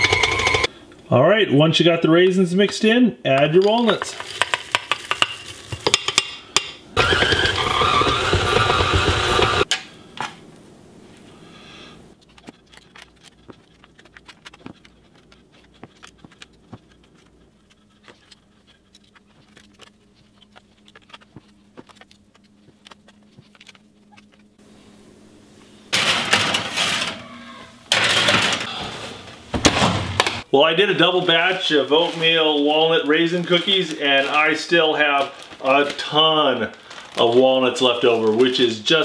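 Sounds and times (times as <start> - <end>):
stand mixer running: 0.0 - 0.7, 7.0 - 9.7
metal baking sheet clatter: 26.0 - 27.2, 27.9 - 28.7.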